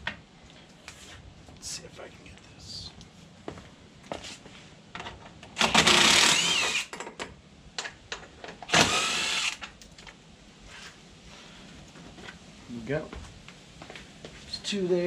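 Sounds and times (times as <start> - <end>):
cordless impact driver: 5.6 - 7.0, 8.7 - 9.7.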